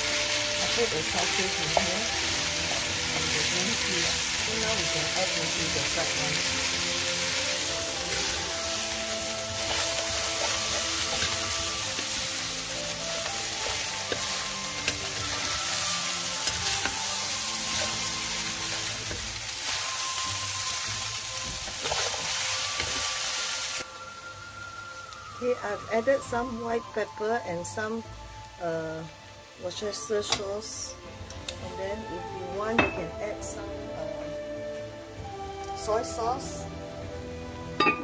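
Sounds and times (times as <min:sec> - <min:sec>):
fried rice sizzling in a pan: 0:00.0 - 0:23.9.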